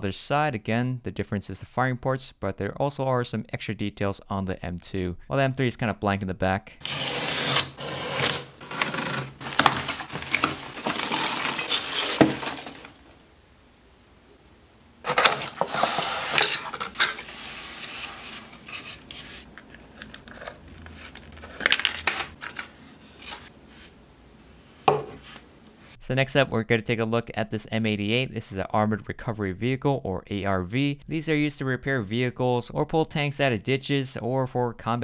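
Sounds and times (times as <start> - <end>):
box cutter slitting tape: 6.8 - 12.9
cardboard packaging rustling: 6.8 - 13.2, 15.0 - 24.0
plastic wrap crinkling: 7.6 - 13.2, 15.0 - 23.5.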